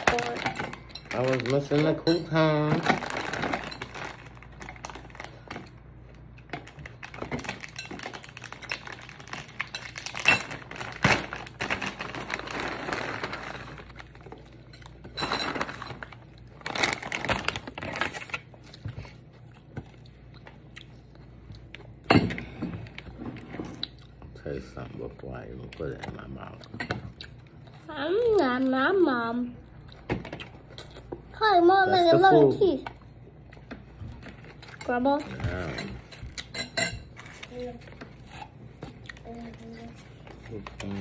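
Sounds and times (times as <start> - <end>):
plastic packets crinkling: 0.0 - 14.6, 15.3 - 18.6.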